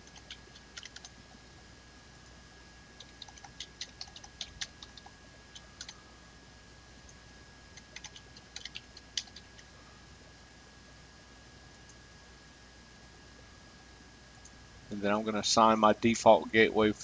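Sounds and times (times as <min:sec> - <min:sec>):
keyboard typing: 0:00.0 - 0:01.2, 0:03.0 - 0:06.0, 0:07.7 - 0:09.7.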